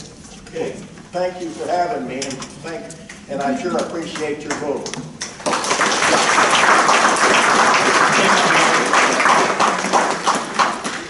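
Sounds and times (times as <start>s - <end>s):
audience applauding: 5.3s - 11.0s.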